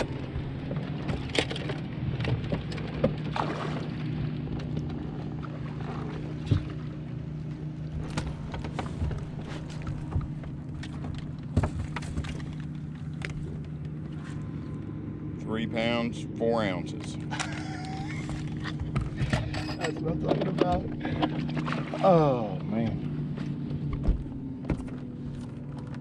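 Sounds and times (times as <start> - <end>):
low mechanical hum: 0.0 - 26.0
fish and tackle knocking: 17.2 - 22.0.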